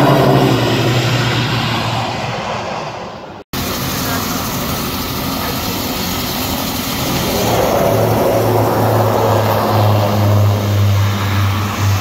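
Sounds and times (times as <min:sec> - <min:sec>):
propeller plane engines droning: 0:00.0 - 0:12.0.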